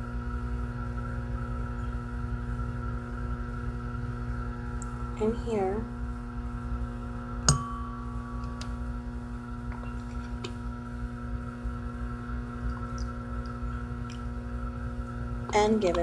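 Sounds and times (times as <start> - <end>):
electrical mains hum: 0.0 - 16.0
object clinking in metal bowl: 7.5 - 8.8
ringing tone: 7.5 - 10.0.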